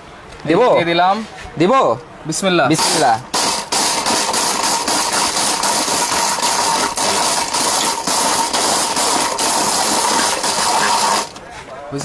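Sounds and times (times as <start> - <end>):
mixer grinder whining: 2.8 - 11.4
brick pieces knocking in jar: 4.2 - 11.4.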